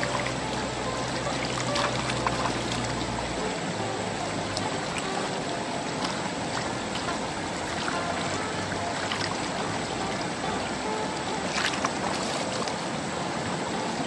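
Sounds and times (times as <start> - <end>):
water sloshing in a pan: 0.0 - 13.6.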